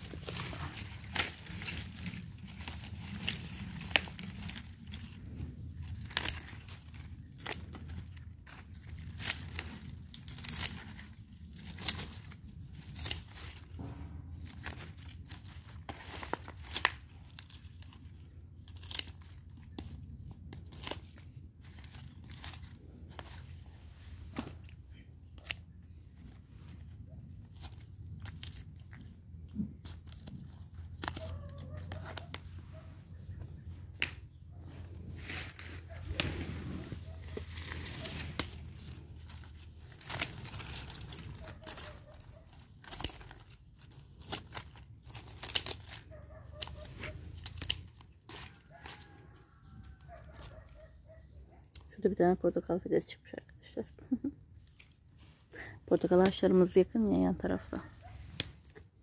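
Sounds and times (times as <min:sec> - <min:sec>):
scissors snipping stems: 0:00.0 - 0:05.0, 0:05.8 - 0:13.8, 0:14.4 - 0:18.0, 0:18.6 - 0:23.4, 0:24.3 - 0:26.4, 0:27.4 - 0:32.9, 0:37.1 - 0:49.0.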